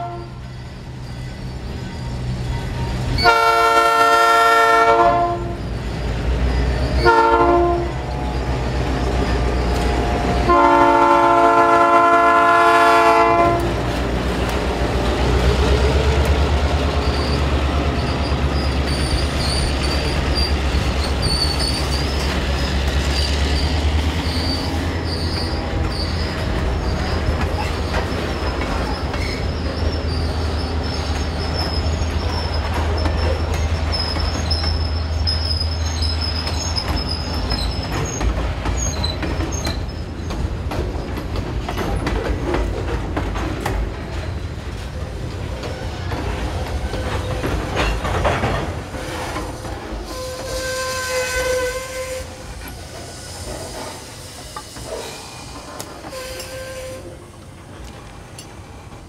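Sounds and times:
locomotive horn blasts: 0.0 - 0.4, 3.2 - 5.6, 7.0 - 8.1, 10.4 - 13.8, 50.0 - 52.4, 56.1 - 57.2
high wheel squeal: 0.0 - 3.6, 5.4 - 11.2, 16.6 - 40.4, 48.9 - 57.2
freight cars rolling by: 0.0 - 59.0
locomotive engine rumbling: 0.0 - 59.0.

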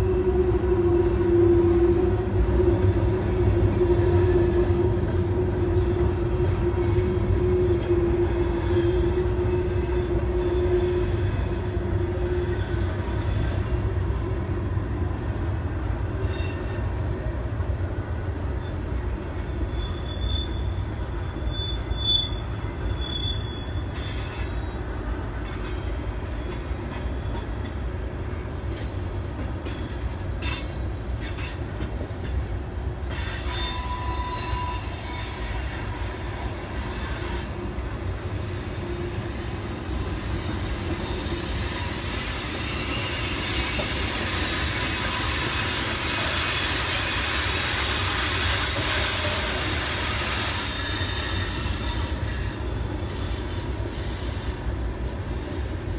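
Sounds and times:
freight train rumbling past: 0.0 - 55.9
high-pitched wheel squeal: 7.4 - 13.8, 19.5 - 24.6, 33.2 - 37.6, 40.0 - 54.6
clicks of train wheels: 19.6 - 55.9.

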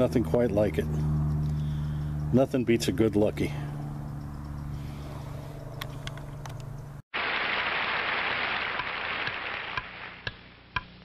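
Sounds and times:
steady low hum: 0.0 - 7.0
old film soundtrack hiss: 7.2 - 10.5.

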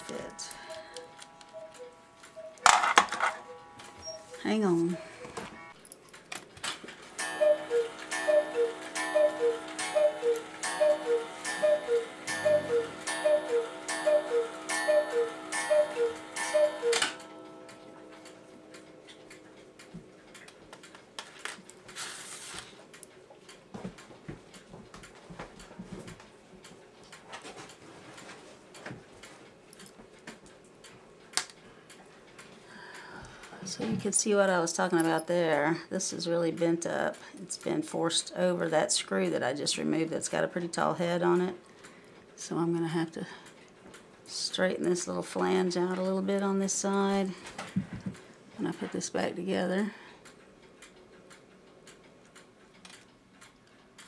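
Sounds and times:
mechanical clock ticking: 0.0 - 6.2, 7.1 - 22.0, 50.2 - 54.0.

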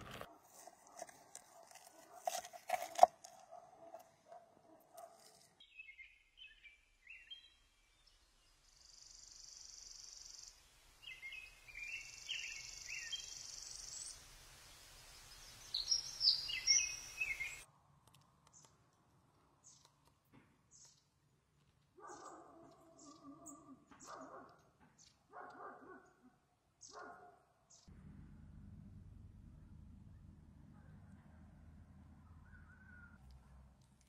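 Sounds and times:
birds chirping: 3.5 - 17.7, 22.0 - 26.2, 32.1 - 33.9.

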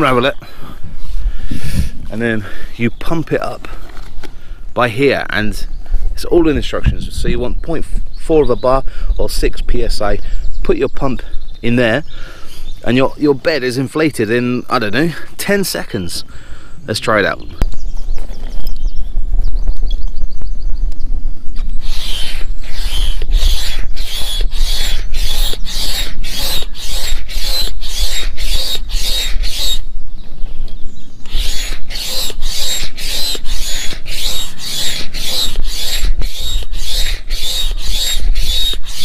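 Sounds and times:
hand air pump strokes: 21.8 - 29.9, 31.2 - 39.0
pump squeak: 31.3 - 39.0.

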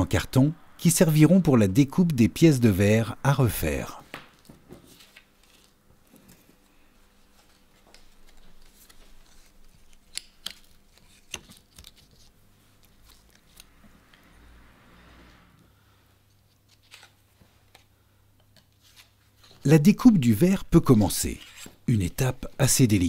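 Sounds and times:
rustling of card and paper: 4.1 - 14.1, 16.3 - 17.9, 18.6 - 19.7, 21.0 - 21.9.

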